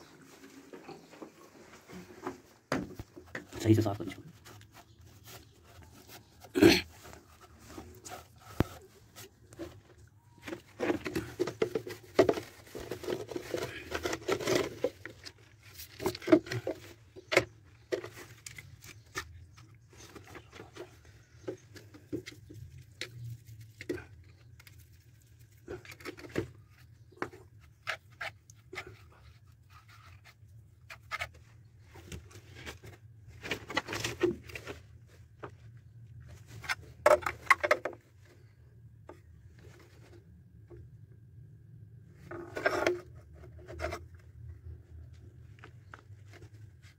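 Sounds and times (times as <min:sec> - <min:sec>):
plastic pipe fittings knocking: 0:37.0 - 0:38.0.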